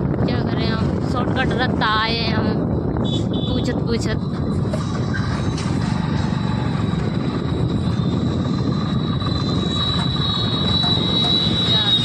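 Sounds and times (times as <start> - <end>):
road and wind noise: 0.0 - 12.0
thin high whine: 6.5 - 12.0.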